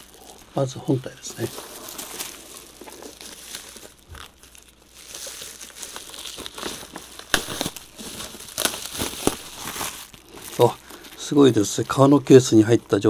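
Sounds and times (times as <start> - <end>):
bubble wrap crinkling: 0.0 - 13.0.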